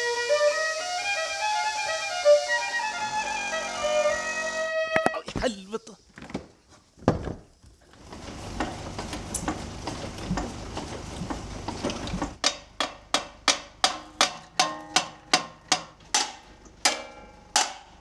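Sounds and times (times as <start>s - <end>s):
scraping and knocking: 6.2s - 12.4s
hammer striking metal: 12.4s - 18.0s.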